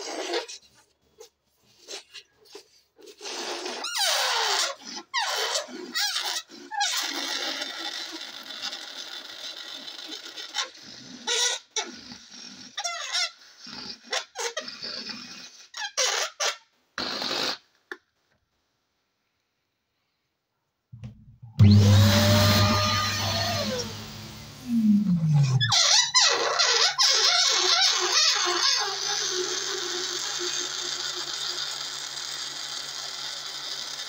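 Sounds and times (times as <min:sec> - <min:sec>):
balloon neck squealing: 0:03.6 - 0:09.2, 0:21.0 - 0:31.8
air rushing from balloon: 0:21.0 - 0:26.2.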